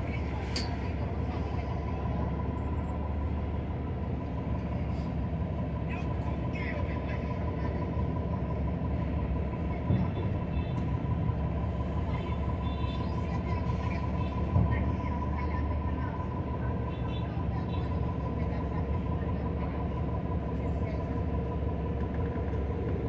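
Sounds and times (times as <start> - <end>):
road noise: 0.0 - 7.2
bus diesel engine rumble: 0.0 - 23.0.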